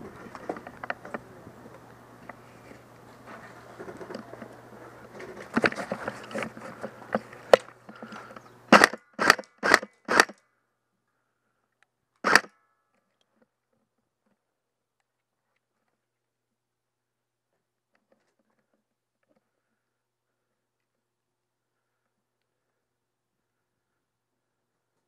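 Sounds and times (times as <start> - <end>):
airsoft gun firing bursts: 8.7 - 10.4, 12.2 - 12.5.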